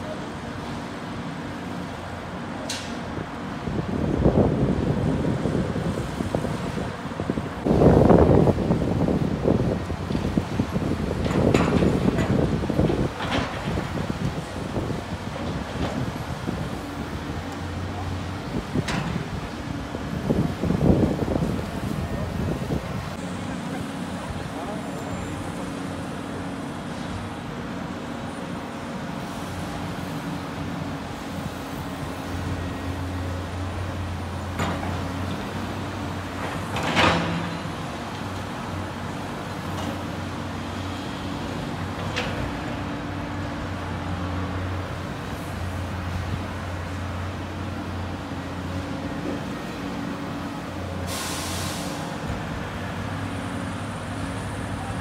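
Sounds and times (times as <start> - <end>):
excavator diesel engine drone: 0.0 - 55.0
short hiss: 51.0 - 52.1.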